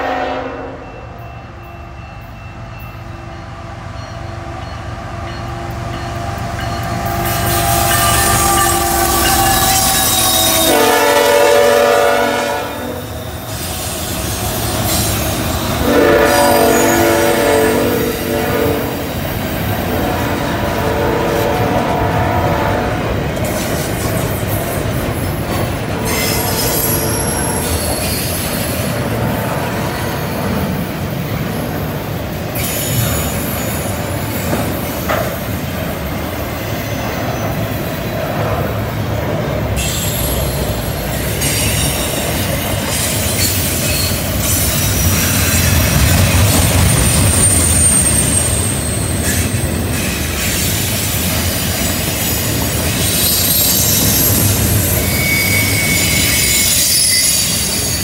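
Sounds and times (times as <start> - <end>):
rumble of wheels on rail: 0.0 - 58.0
high-pitched wheel squeal: 7.0 - 11.0, 46.7 - 50.7, 52.2 - 58.0.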